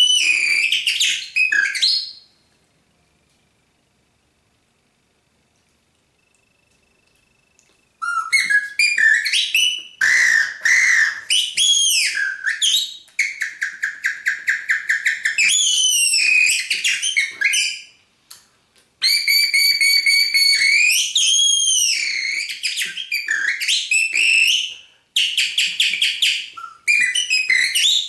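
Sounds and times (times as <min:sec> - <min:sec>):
bird-call whistle warbling: 0:00.0 - 0:02.4, 0:06.2 - 0:18.0, 0:19.0 - 0:28.0.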